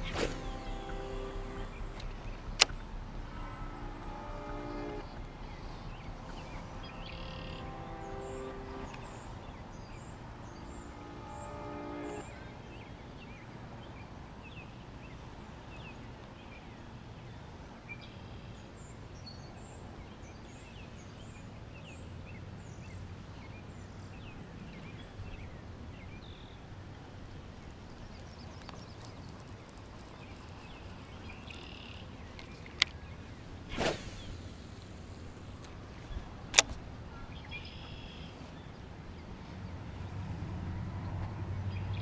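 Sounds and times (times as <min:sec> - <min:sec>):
bird chirps: 0:00.0 - 0:13.4, 0:27.6 - 0:33.4
low background rumble: 0:00.0 - 0:13.4
faint ticks: 0:27.6 - 0:33.0.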